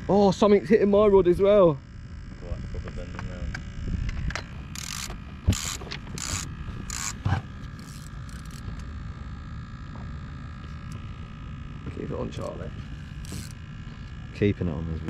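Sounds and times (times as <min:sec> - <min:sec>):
fishing reel ratchet clicking: 0:03.2 - 0:08.9, 0:12.3 - 0:13.6.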